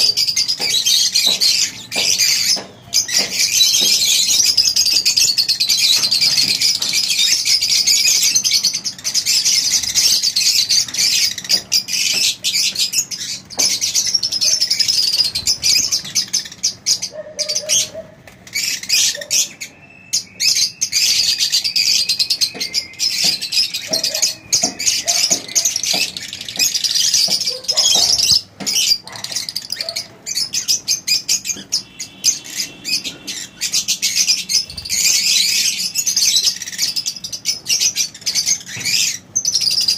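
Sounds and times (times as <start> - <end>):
lovebirds chirping: 0.0 - 39.9.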